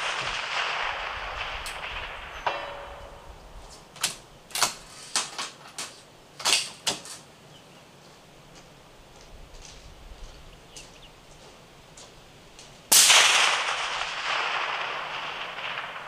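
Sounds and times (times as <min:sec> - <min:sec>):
suppressed rifle shot echo: 0:00.0 - 0:03.5, 0:12.9 - 0:16.0.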